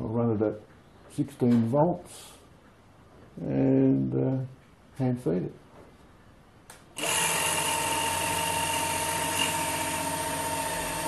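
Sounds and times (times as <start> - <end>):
electric motor whining: 7.0 - 11.0.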